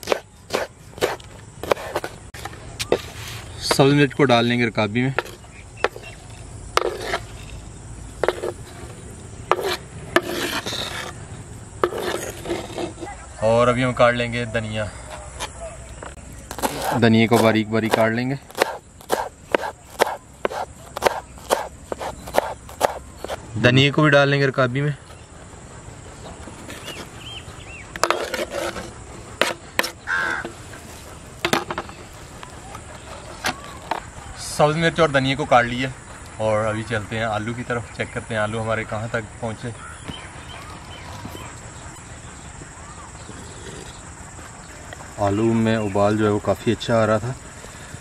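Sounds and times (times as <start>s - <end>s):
knife scraping chopping board: 0.0s - 2.2s, 6.8s - 7.6s, 8.2s - 8.9s, 9.5s - 11.2s, 11.8s - 13.1s, 16.5s - 23.4s, 26.6s - 27.2s, 28.0s - 31.9s
birds chirping and calling: 0.0s - 48.0s.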